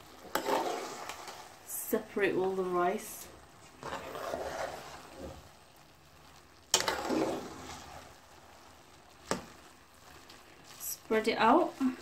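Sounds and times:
spatula scraping rice in metal pan: 0.2s - 1.6s, 3.7s - 5.4s, 6.7s - 9.6s.

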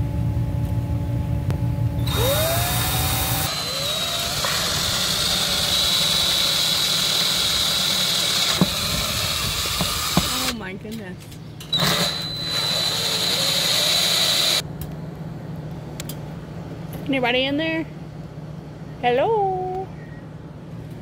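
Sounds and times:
cordless drill whining: 2.0s - 10.6s, 11.7s - 14.6s.

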